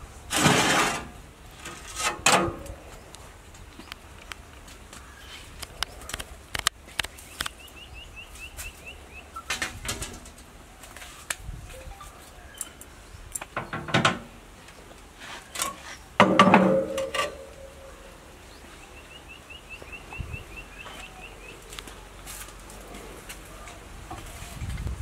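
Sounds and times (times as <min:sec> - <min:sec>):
bird chirping: 0:06.9 - 0:09.5, 0:17.0 - 0:21.7
loud metal clang: 0:16.2 - 0:17.6.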